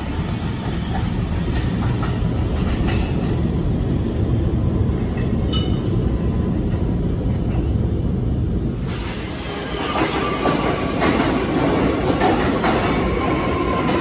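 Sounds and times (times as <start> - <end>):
subway train rumble: 0.0 - 14.0
train wheels clattering: 8.8 - 14.0.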